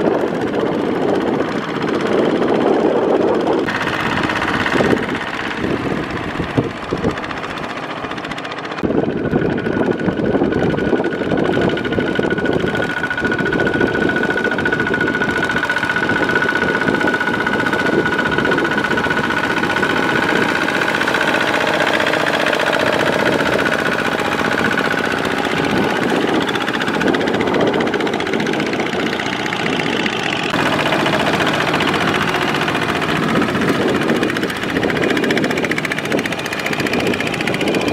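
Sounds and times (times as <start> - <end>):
diesel engine under load: 0.0 - 37.9
wheels churning through mud: 0.0 - 37.9.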